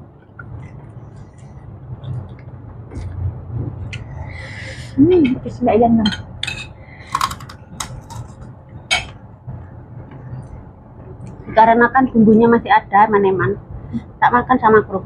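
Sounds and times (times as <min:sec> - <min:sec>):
metal spoon clinking on a plate: 0:06.1 - 0:09.2.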